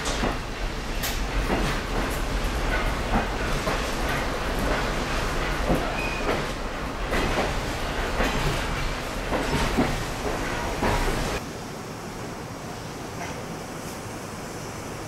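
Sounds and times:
train coach rumbling on track: 0:00.0 - 0:15.0
wind hiss at open window: 0:08.6 - 0:15.0.

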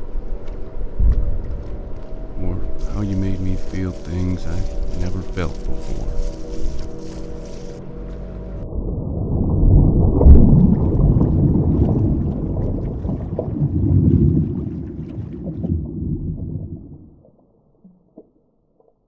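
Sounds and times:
muffled underwater rumble: 0:00.0 - 0:18.9
small crackles: 0:00.4 - 0:08.4
gurgling bubbles: 0:08.7 - 0:17.2.

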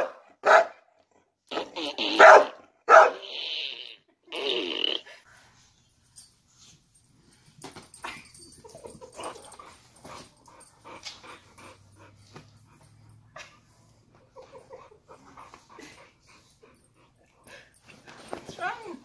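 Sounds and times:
dogs sniffing and snorting: 0:08.9 - 0:19.0.

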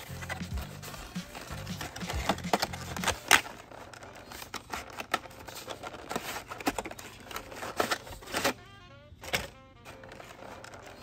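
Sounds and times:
cardboard and plastic crinkling: 0:00.0 - 0:11.0.

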